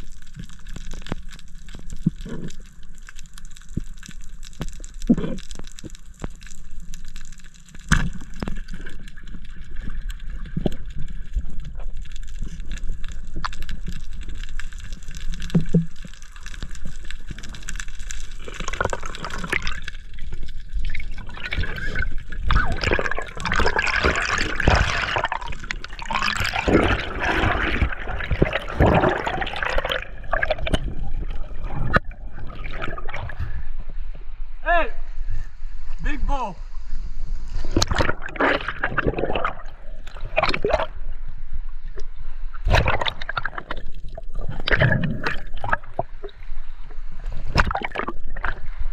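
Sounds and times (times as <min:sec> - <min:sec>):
muffled underwater rumble: 0:00.0 - 0:36.0
water gurgling and bubbling: 0:07.9 - 0:33.7, 0:37.6 - 0:41.2, 0:42.5 - 0:46.7, 0:47.4 - 0:48.9.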